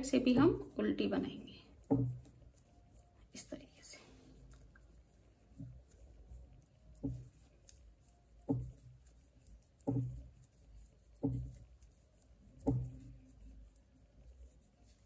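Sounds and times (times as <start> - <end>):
knitting needles knocking: 1.4 - 2.6, 6.9 - 10.5, 11.1 - 11.9, 12.5 - 13.2.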